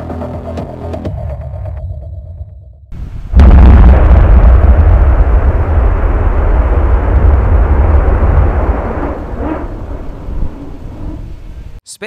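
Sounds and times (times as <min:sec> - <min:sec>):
rocket engine roar: 0:03.0 - 0:11.8.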